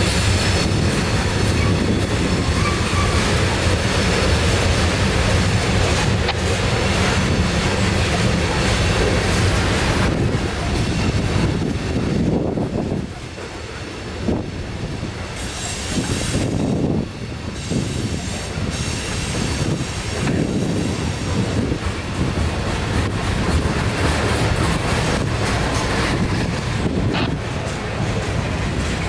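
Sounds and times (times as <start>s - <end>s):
wheels clicking over rail joints: 0.0s - 14.2s, 19.8s - 29.0s
steel wheels rumbling on rail: 0.0s - 29.0s
high-pitched wheel squeal: 1.6s - 3.4s.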